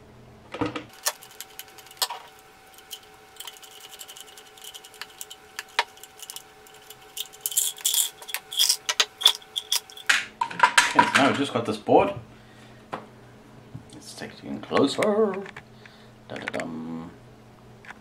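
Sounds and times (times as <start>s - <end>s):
faint steady hum: 0.0s - 18.0s
screws and plastic parts rattling: 0.9s - 10.2s.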